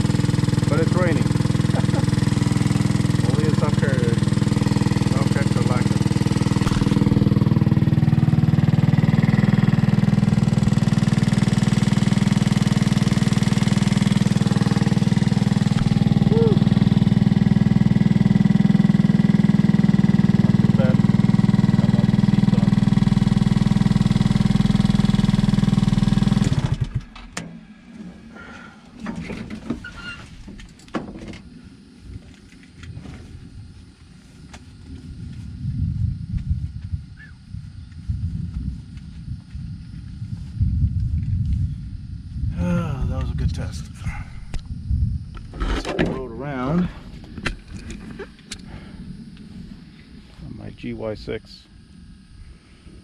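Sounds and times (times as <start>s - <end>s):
buggy engine running: 0.0s - 33.5s.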